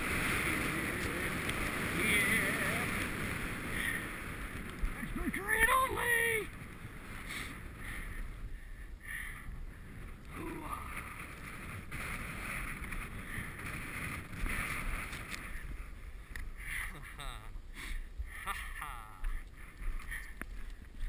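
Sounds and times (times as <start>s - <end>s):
skis scraping over snow: 0.0s - 8.4s, 9.8s - 16.2s
wind on microphone: 0.0s - 21.0s.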